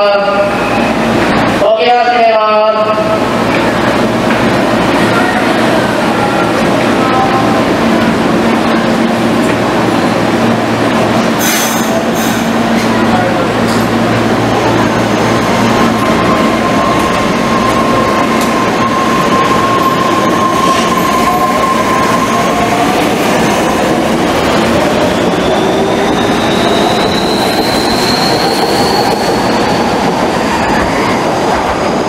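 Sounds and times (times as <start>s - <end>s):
train wheels rumbling: 0.4s - 32.0s.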